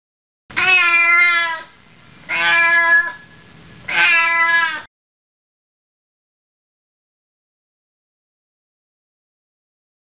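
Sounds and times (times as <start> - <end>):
cat meowing: 0.5 - 1.7, 2.3 - 3.3, 3.9 - 4.9.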